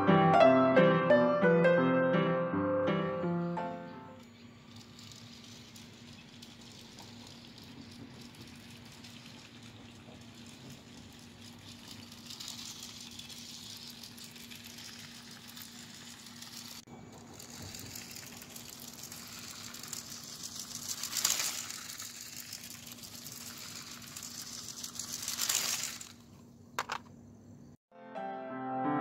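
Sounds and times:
plastic wheels rattling on track: 0:04.2 - 0:27.1.

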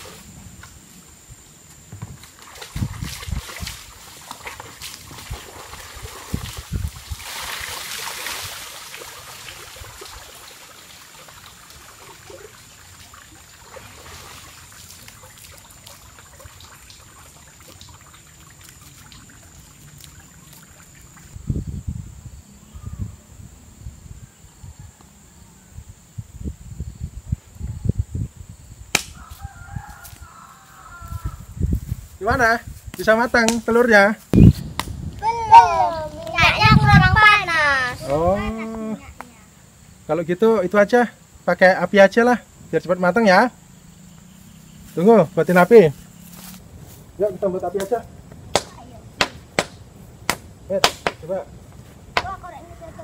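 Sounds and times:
water splashing and trickling: 0:02.0 - 0:21.4, 0:35.0 - 0:39.4
rush of water: 0:02.3 - 0:21.4.

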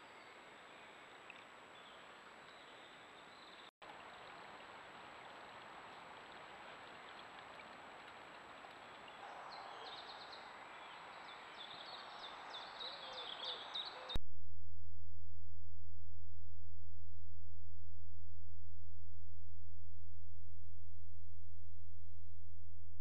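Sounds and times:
small birds singing: 0:00.0 - 0:03.7, 0:08.8 - 0:14.2.

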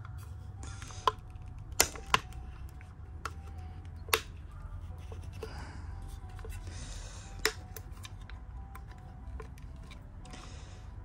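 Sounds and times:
low steady hum: 0:00.0 - 0:11.0
sharp plastic clicks: 0:00.8 - 0:04.4.

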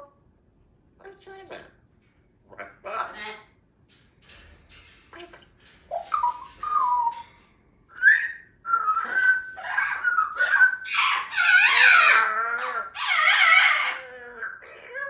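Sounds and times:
parrot whistling and calling: 0:05.9 - 0:07.3, 0:07.9 - 0:15.0.

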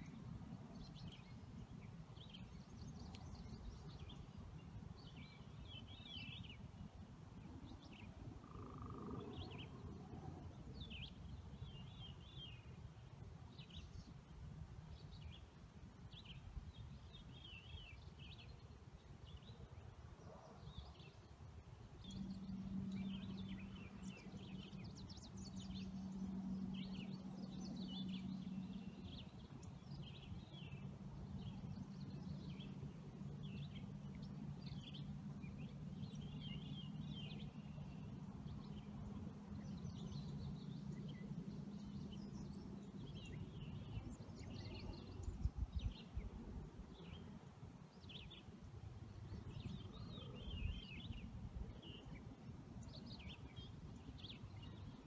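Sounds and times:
low steady hum: 0:00.0 - 0:55.0
small birds chirping: 0:22.0 - 0:55.0.

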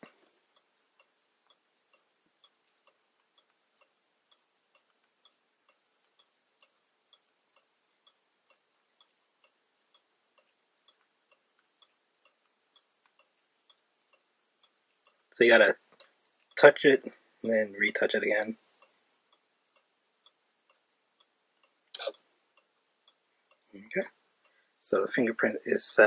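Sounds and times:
faint ticking: 0:00.0 - 0:26.0.

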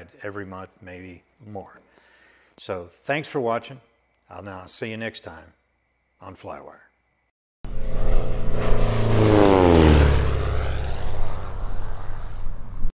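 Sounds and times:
aircraft flying past: 0:07.6 - 0:13.0.

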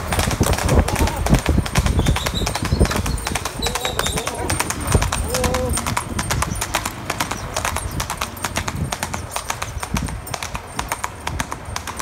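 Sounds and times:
horse hoofbeats on road: 0:00.0 - 0:12.0.

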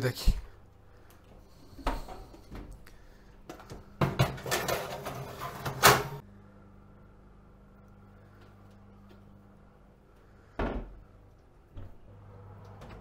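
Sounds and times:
metal tray scraping on oven rack: 0:04.4 - 0:06.2.

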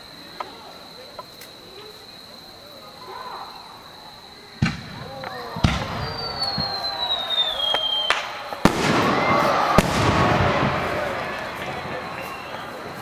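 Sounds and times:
firework whistle: 0:04.6 - 0:13.0
fireworks bangs: 0:04.6 - 0:13.0.

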